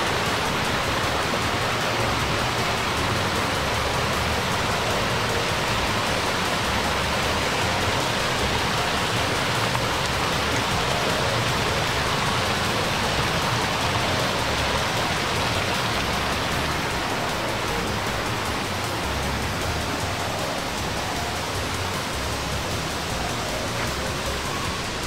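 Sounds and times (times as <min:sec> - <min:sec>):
water pouring over stone: 0:00.0 - 0:25.0.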